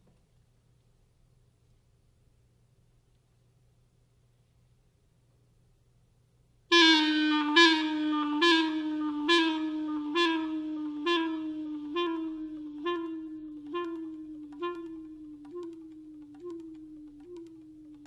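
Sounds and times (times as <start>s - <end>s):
clarinet note: 6.7s - 18.0s.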